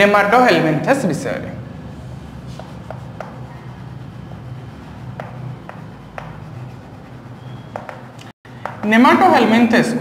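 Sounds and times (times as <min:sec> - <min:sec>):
chalk scratching on blackboard: 0:01.9 - 0:08.2
chalk tapping on board: 0:02.4 - 0:03.9, 0:05.0 - 0:09.0.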